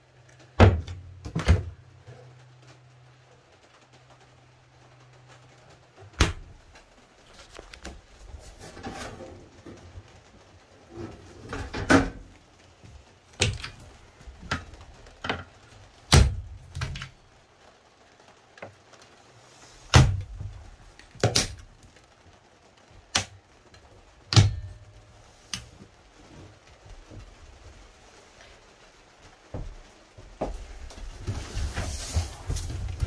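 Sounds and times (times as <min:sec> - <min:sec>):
cupboard doors knocking and clicking: 0:00.6 - 0:01.8.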